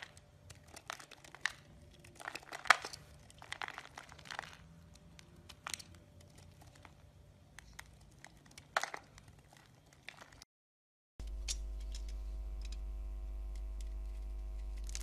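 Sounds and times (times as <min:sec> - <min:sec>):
knife cutting crumbly soap: 0:13.4 - 0:15.0.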